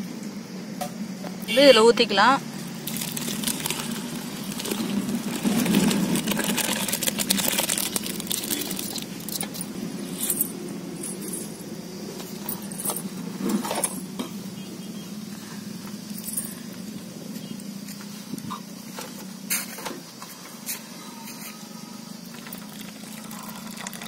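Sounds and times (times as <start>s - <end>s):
liquid pouring and splashing: 2.8s - 9.0s, 22.3s - 24.0s
water dripping: 22.3s - 24.0s.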